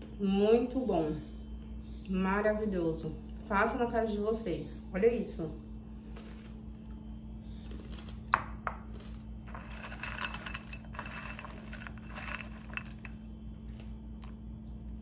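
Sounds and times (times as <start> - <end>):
pasta clinking against glass bowl: 9.5 - 13.1.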